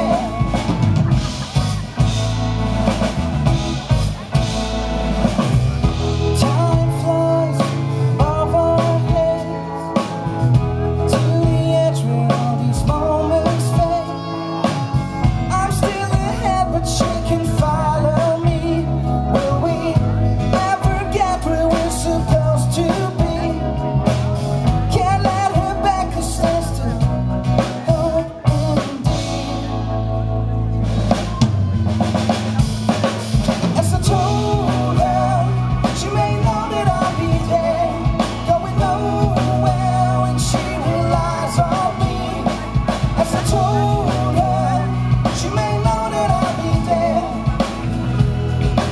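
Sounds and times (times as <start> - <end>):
man singing: 0.0 - 4.8, 5.7 - 30.5, 32.3 - 48.9
drum kit beat: 0.0 - 29.9, 30.8 - 48.9
electric bass: 0.0 - 48.9
keyboard: 0.0 - 48.9.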